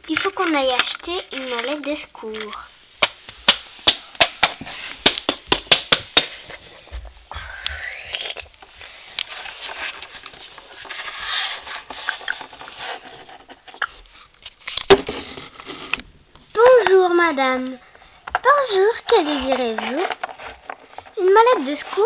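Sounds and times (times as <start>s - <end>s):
plastic figurines scraping and rustling: 0.0s - 3.1s, 7.7s - 16.7s, 17.4s - 22.0s.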